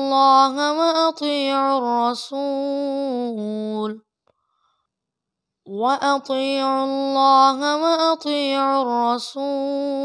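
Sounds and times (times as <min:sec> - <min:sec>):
person chanting: 0:05.7 - 0:10.0.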